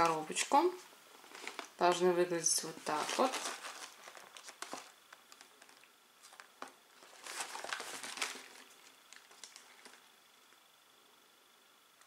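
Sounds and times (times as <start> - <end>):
cardboard box packaging crinkling: 1.3 - 1.8, 2.8 - 10.1.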